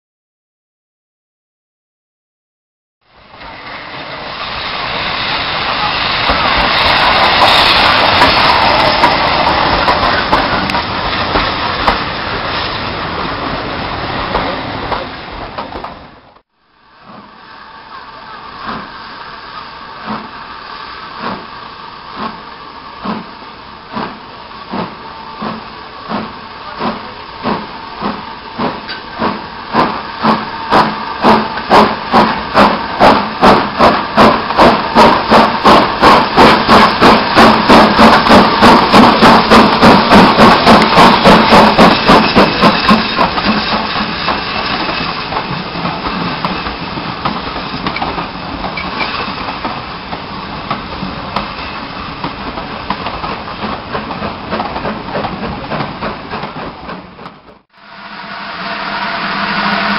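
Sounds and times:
steam hissing: 3.2 - 15.1, 16.9 - 56.8, 57.8 - 59.9
steam locomotive exhaust chuffs: 16.9 - 59.9.

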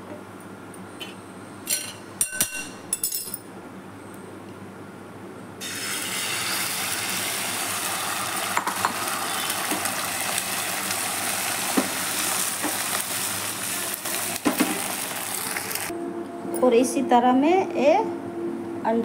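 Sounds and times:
egg sizzling in hot oil: 5.6 - 15.9.

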